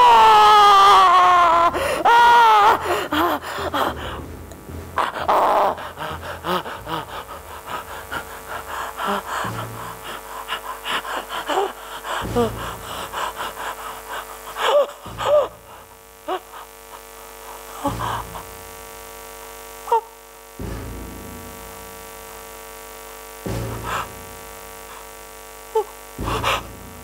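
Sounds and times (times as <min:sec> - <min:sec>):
man's wordless cries: 0:00.0 - 0:04.2, 0:05.0 - 0:18.5
steady hum: 0:00.0 - 0:27.0
man gasping: 0:01.8 - 0:02.1, 0:02.8 - 0:18.7.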